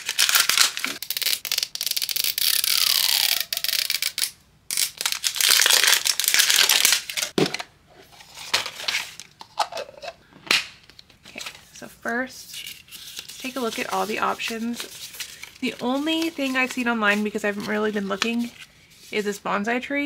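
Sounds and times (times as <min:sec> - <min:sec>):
plastic wrapper crinkling and tearing: 0:00.0 - 0:07.4.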